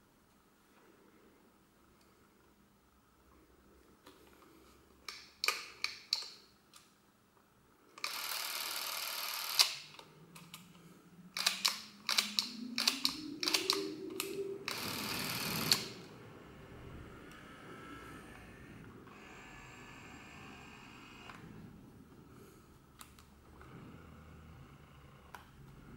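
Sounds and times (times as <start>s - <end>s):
camera motor whirring: 8.0s - 9.8s, 14.7s - 16.0s, 19.1s - 21.4s
faint rising tone: 10.1s - 22.0s.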